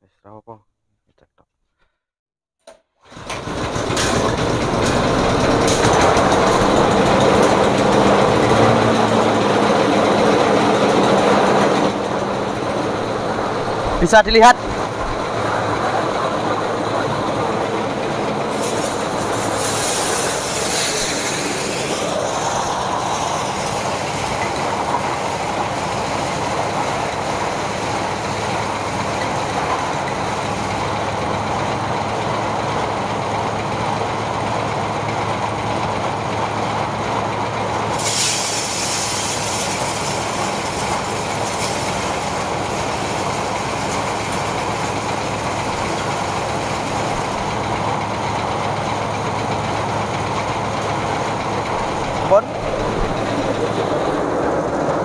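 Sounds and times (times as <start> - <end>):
thresher rattling drone: 3.2 - 55.0
low engine hum: 3.4 - 38.0, 39.8 - 55.0
hissing rattle: 18.4 - 30.8, 38.0 - 54.8.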